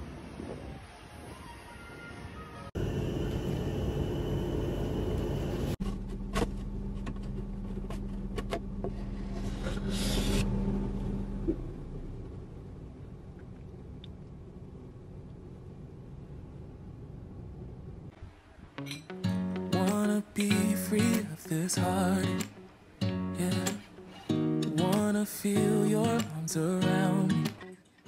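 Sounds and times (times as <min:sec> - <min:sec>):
car interior rumble: 0:06.0 - 0:18.1.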